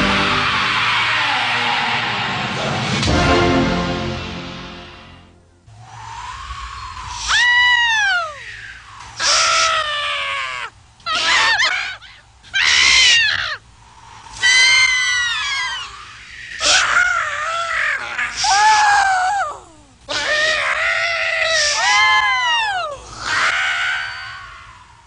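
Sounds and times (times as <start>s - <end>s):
cartoon voice screaming and wailing: 14.4s - 24.4s.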